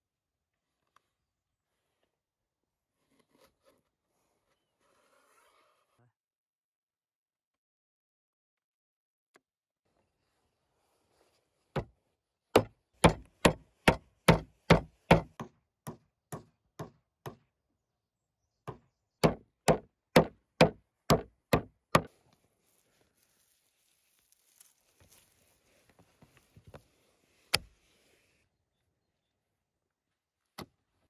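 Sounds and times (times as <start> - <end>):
wooden mallet pounding meat: 12.6 - 17.4, 18.7 - 22.1.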